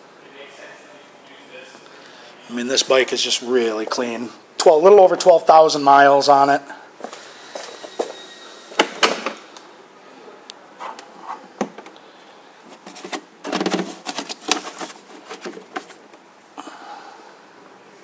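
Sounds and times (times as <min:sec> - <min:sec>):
plastic saddlebag clattering: 0:12.7 - 0:16.2.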